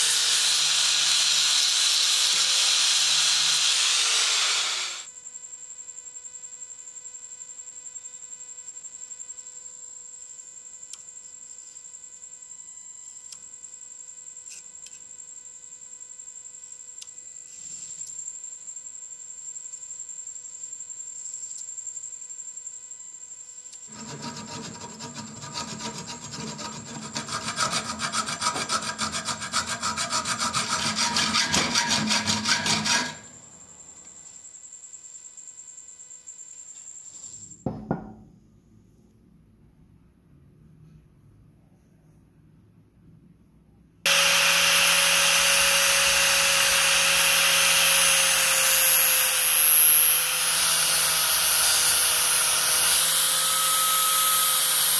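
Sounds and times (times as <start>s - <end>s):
electrical hum with high whine: 5.1s - 27.4s
cutting tool rasping on steel: 23.9s - 33.4s, 44.1s - 54.9s.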